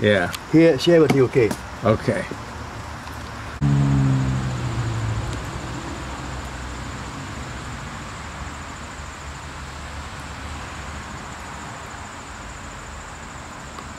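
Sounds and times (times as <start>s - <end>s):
continuous hiss: 0.0s - 3.6s, 4.2s - 13.9s
low rumble: 3.6s - 7.1s.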